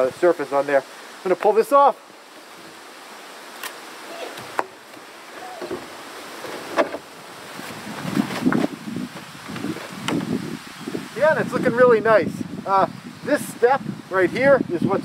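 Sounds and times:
plastic tarp rustling and crinkling: 4.0s - 10.6s.

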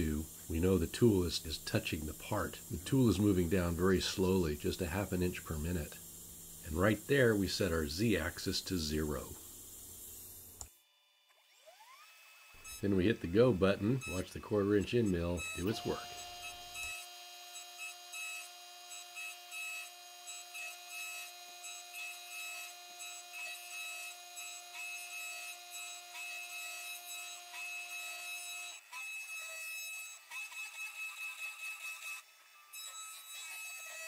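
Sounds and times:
cnc router spindle whining: 11.4s - 22.0s.

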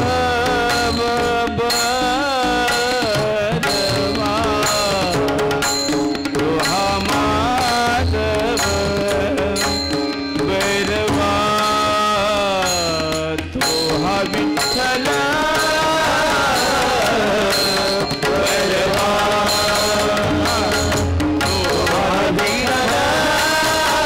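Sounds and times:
hand drum: 0.0s - 24.0s.

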